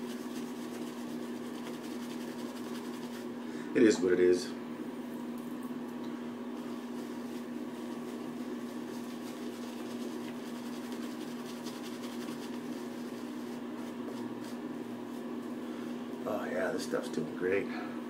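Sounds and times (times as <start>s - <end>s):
shaving brush swishing on face: 0.0s - 3.4s, 6.6s - 15.6s
steady low hum: 0.0s - 18.0s.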